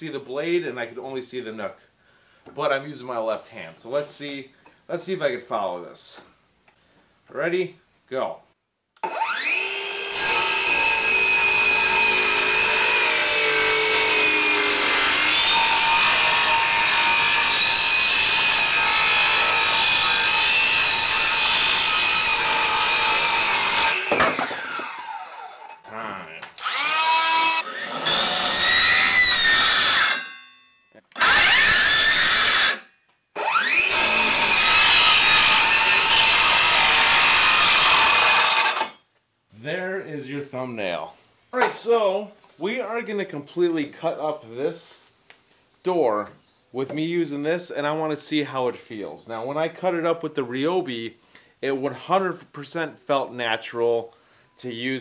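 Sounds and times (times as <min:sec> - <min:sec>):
circular saw cutting wood: 0:09.0 - 0:25.8, 0:26.6 - 0:30.4, 0:31.2 - 0:39.0.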